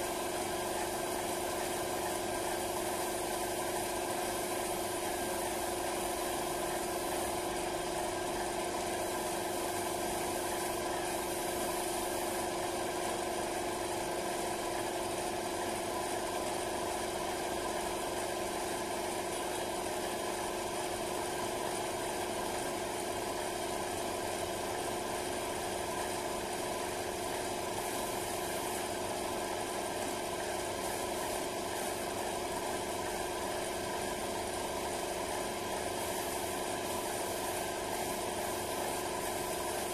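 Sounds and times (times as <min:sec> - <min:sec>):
spray gun hissing: 0:00.0 - 0:12.6, 0:26.0 - 0:39.9
air compressor humming: 0:00.0 - 0:13.5, 0:23.7 - 0:39.9.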